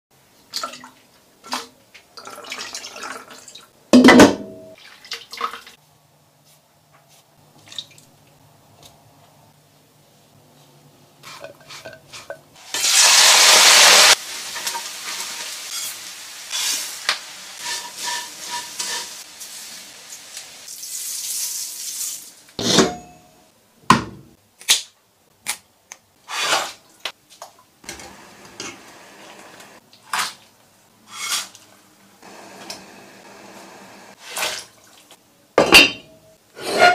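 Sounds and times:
pots and utensils clinking: 0:11.2 - 0:16.9, 0:17.6 - 0:19.3, 0:35.6 - 0:36.9
loud hiss: 0:12.6 - 0:14.4.

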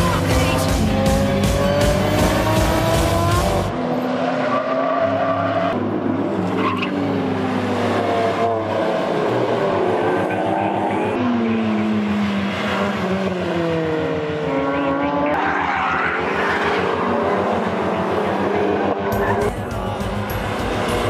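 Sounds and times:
sports car engines revving: 0:00.0 - 0:21.0.

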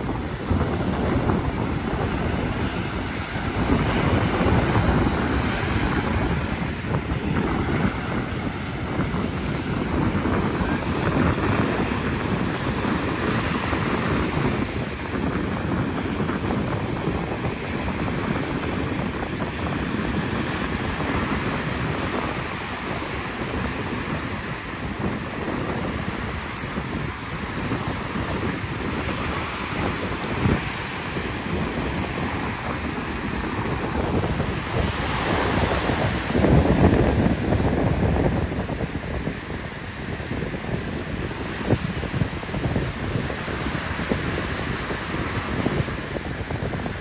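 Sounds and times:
sea surf breaking: 0:00.0 - 0:47.0
wind buffeting microphone: 0:00.0 - 0:47.0.

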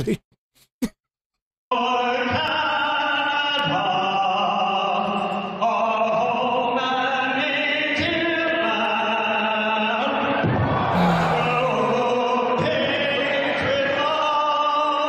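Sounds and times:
man singing solo: 0:11.0 - 0:12.5.

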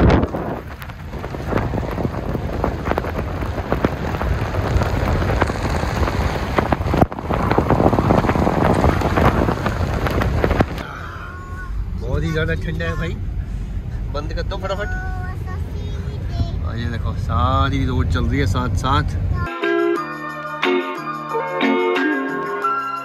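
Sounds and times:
wind buffeting microphone: 0:00.0 - 0:11.0
wind and tyre noise rushing: 0:00.0 - 0:19.5.

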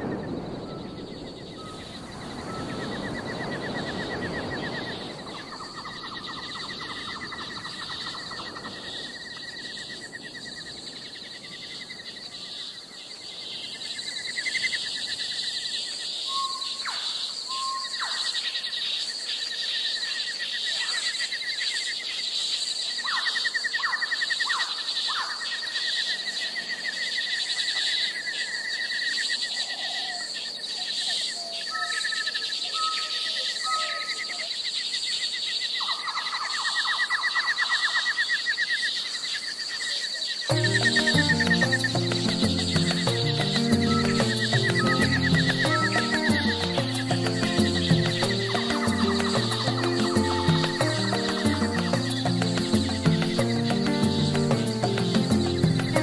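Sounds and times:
insects trilling: 0:00.0 - 0:56.0
birds calling: 0:40.5 - 0:56.0.

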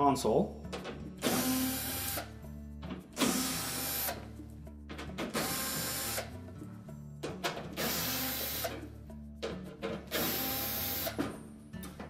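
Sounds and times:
background music: 0:00.0 - 0:12.0
cordless drill running: 0:01.2 - 0:02.3, 0:03.2 - 0:04.2, 0:05.4 - 0:06.3, 0:07.8 - 0:08.7, 0:10.1 - 0:11.2.

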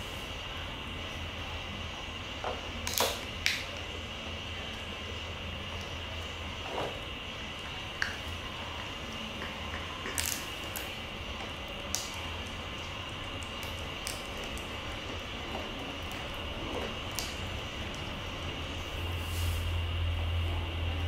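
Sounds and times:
background hum: 0:00.0 - 0:21.0.

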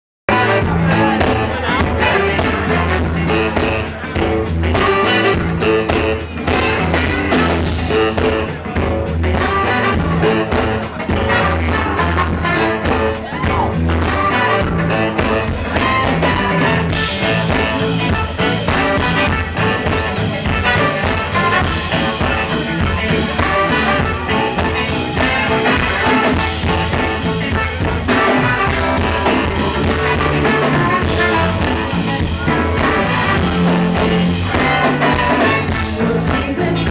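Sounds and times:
funk band playing: 0:00.3 - 0:36.9
women singing: 0:36.0 - 0:36.9.

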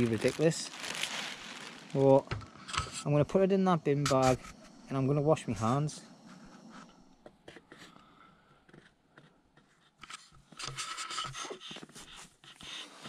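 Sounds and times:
tent fabric rustling and scraping: 0:00.0 - 0:03.2.

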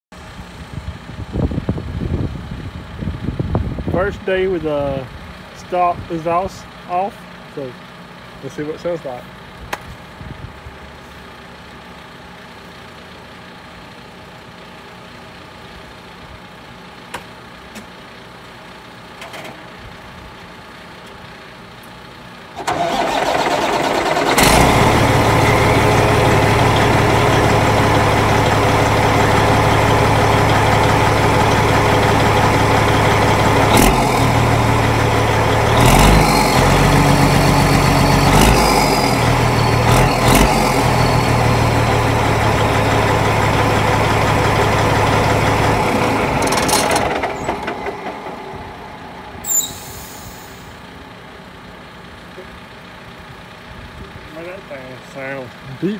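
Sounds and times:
diesel engine idling loudly: 0:00.2 - 0:55.9
diesel engine cranking: 0:22.3 - 0:54.0.

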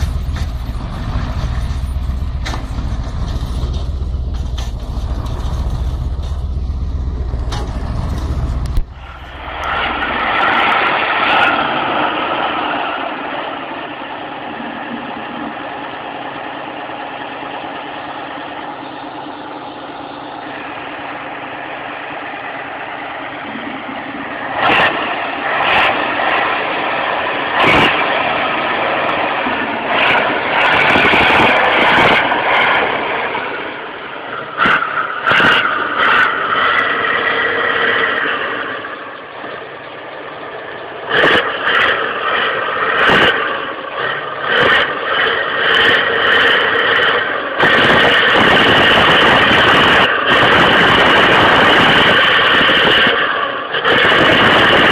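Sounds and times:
deep truck rumble: 0:00.0 - 0:54.9
diesel tractor engine running: 0:00.0 - 0:54.9.

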